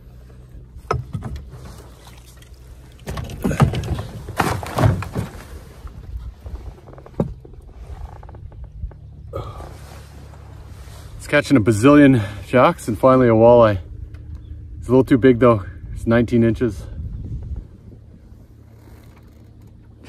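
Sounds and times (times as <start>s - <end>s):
low hum: 0.0s - 20.0s
fish handling knocks and splashes: 0.7s - 5.7s.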